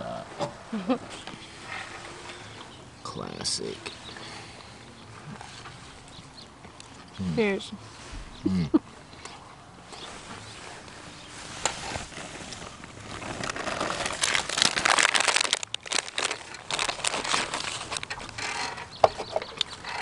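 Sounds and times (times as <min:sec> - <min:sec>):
snack bag crinkling: 0:12.9 - 0:18.6.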